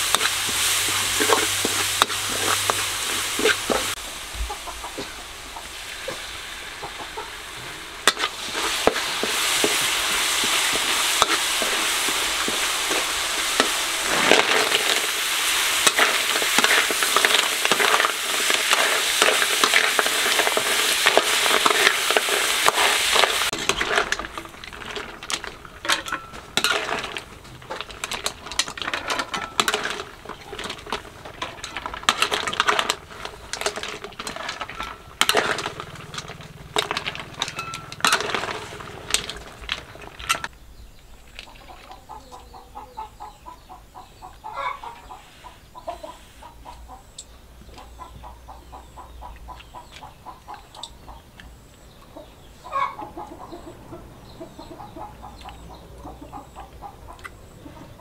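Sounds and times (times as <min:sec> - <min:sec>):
dishes clinking and scraping: 0:00.0 - 0:04.0, 0:08.0 - 0:15.2, 0:15.8 - 0:40.5
chickens clucking: 0:00.0 - 0:40.5, 0:41.4 - 0:58.0.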